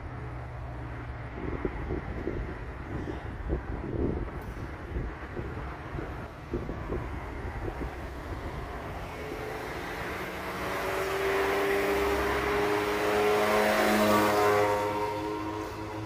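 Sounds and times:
vehicle passing by: 0:04.9 - 0:16.0.

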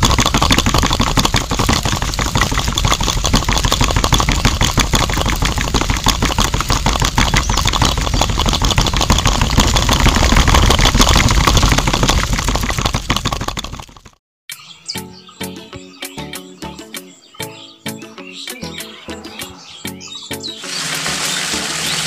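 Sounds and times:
drum rattling clatter: 0:00.0 - 0:14.2
small electric motor running: 0:20.6 - 0:22.0.

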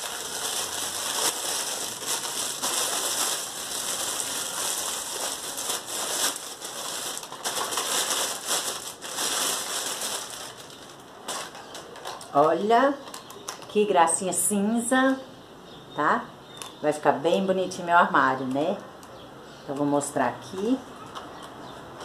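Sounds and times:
plastic packaging crinkling: 0:00.0 - 0:13.7.

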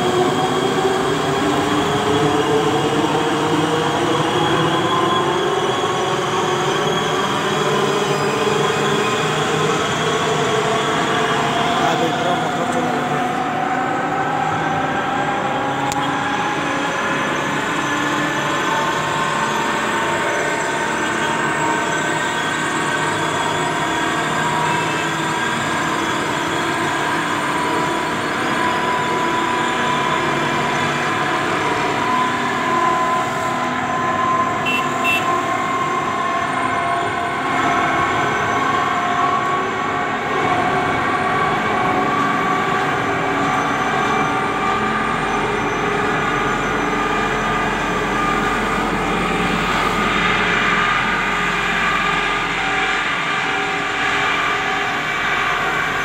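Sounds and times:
long drifting tones: 0:40.9 - 0:56.0.

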